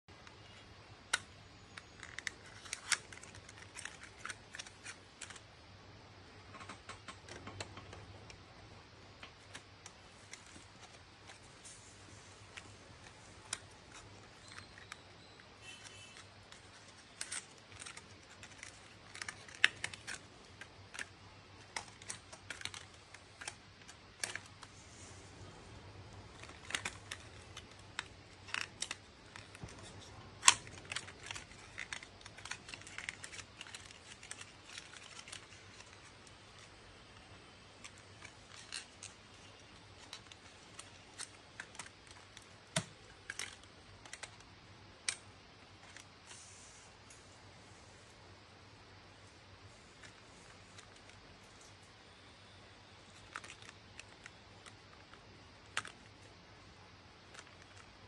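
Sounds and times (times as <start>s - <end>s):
faint low hum: 0.1s - 58.0s
cardboard and plastic clicks: 12.5s - 24.8s, 25.4s - 46.2s, 53.1s - 56.4s.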